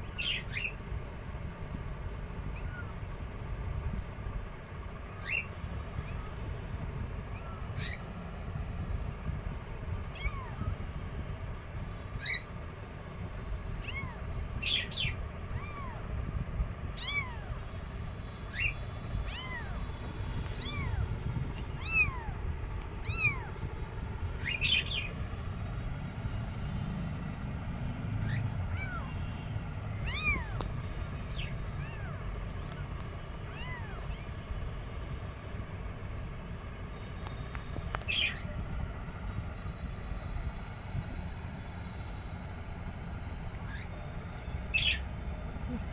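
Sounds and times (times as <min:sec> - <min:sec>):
kittens mewing: 0:10.1 - 0:10.8, 0:13.8 - 0:14.2, 0:15.5 - 0:16.1, 0:17.0 - 0:17.6, 0:18.6 - 0:22.4, 0:23.0 - 0:23.6, 0:28.2 - 0:29.2, 0:30.0 - 0:34.4.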